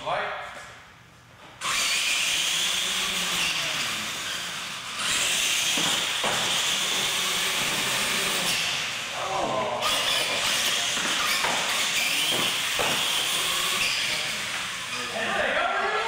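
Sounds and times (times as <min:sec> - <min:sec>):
rc truck motors hissing: 0:01.6 - 0:09.2, 0:09.8 - 0:15.4.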